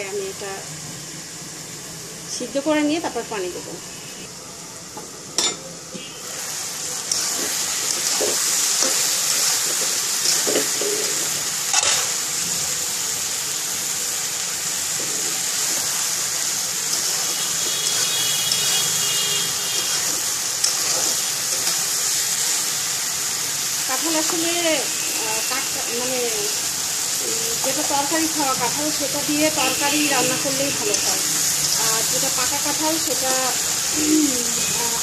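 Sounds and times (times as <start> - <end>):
jackfruit sizzling in hot oil: 0.0 - 35.0
metal spatula scraping a pan: 16.9 - 22.0.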